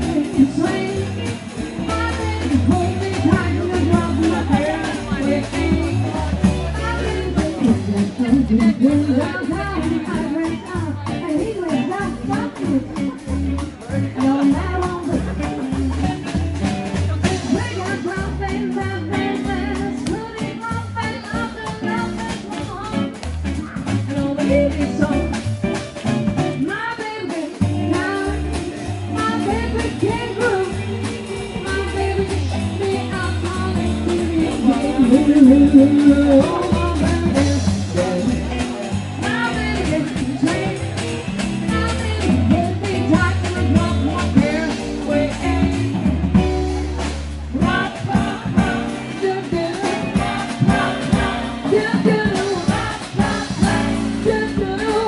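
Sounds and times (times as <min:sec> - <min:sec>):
double bass line: 0:00.0 - 0:55.0
live band music: 0:00.0 - 0:55.0
person singing: 0:00.0 - 0:55.0.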